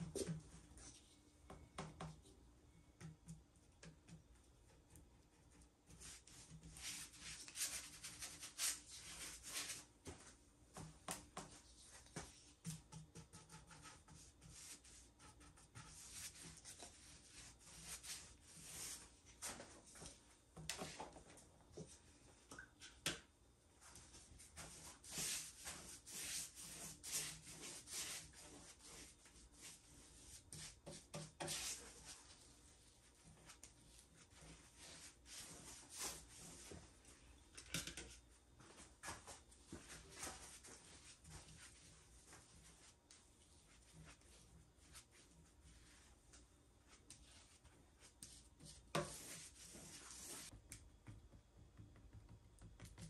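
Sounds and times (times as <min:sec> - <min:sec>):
paintbrush swishing: 0:34.2 - 0:36.8, 0:47.2 - 0:50.5.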